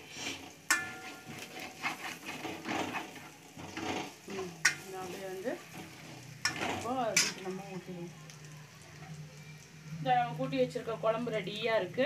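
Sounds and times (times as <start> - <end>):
ladle scraping metal pan: 0.0 - 7.5
oil sizzling: 0.0 - 12.0.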